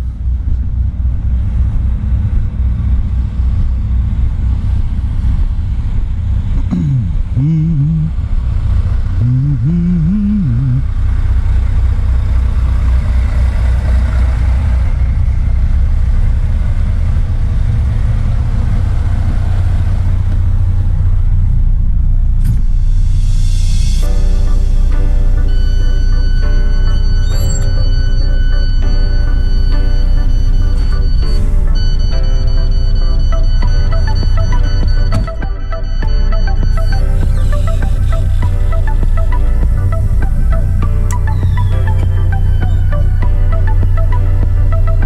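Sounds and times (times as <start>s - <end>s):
diesel truck engine idling: 0.0s - 45.0s
wavering pitched sound: 24.0s - 45.0s.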